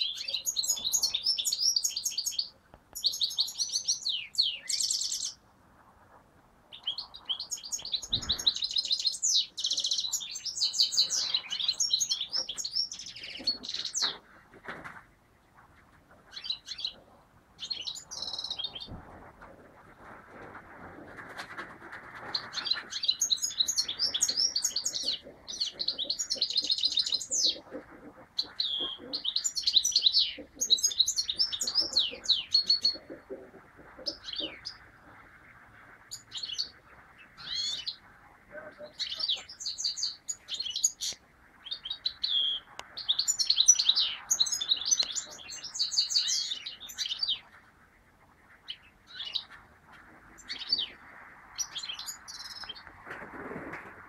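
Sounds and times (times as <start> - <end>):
finch twittering and trilling: 0.0 - 5.4, 6.7 - 14.2, 16.3 - 17.0, 17.6 - 19.0, 22.3 - 27.8, 28.4 - 33.3, 34.0 - 35.2, 36.0 - 47.5, 48.6 - 49.6, 50.4 - 52.8.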